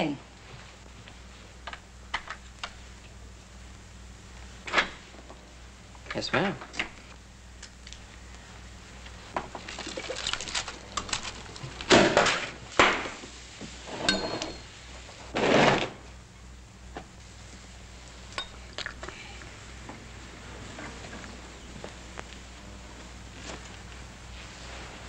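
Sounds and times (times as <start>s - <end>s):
glass clinking and knocking: 14.0s - 14.7s, 18.4s - 18.6s
ringing glass clink: 14.0s - 14.7s, 18.4s - 18.6s.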